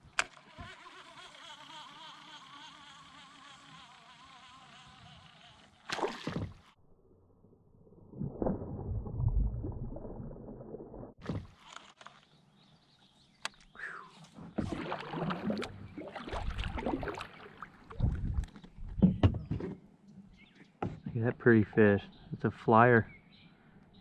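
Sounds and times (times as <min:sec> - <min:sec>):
fish splash: 0:05.8 - 0:06.6, 0:14.6 - 0:18.0
water sloshing: 0:14.3 - 0:19.0.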